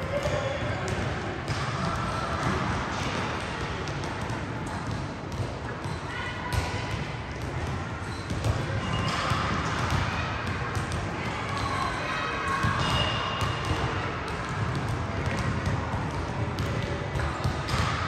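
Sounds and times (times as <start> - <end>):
basketballs bouncing on wooden floor: 0.1 - 5.6, 13.6 - 18.0.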